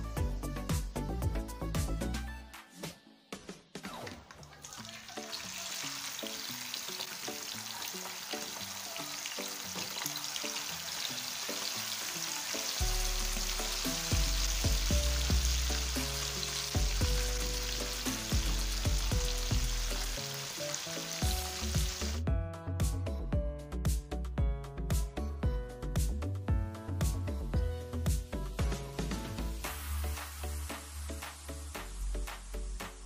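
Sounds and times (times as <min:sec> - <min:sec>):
background music with bass: 0:00.0 - 0:03.5, 0:12.8 - 0:20.3, 0:21.2 - 0:33.0
food sizzling in hot oil: 0:04.6 - 0:22.2, 0:29.0 - 0:33.0.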